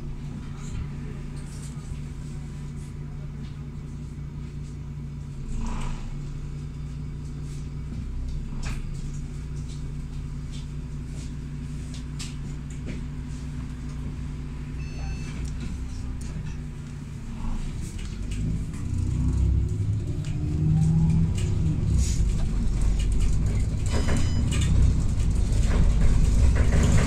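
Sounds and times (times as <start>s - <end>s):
bus engine hum: 0.0s - 27.0s
high electronic beep: 14.8s - 15.4s, 23.9s - 24.7s
interior rattles: 15.6s - 27.0s.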